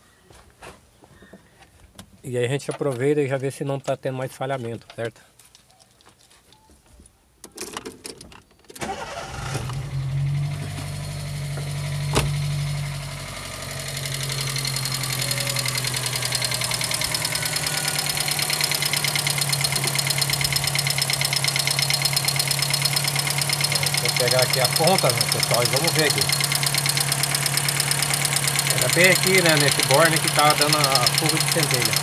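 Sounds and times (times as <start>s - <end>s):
car engine starting and idling: 8.8s - 32.0s
fast even ticking: 13.9s - 32.0s.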